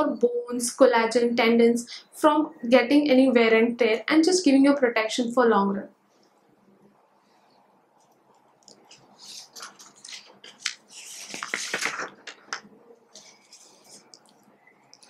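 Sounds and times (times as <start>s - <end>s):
paper crinkling and rustling: 8.6s - 15.0s.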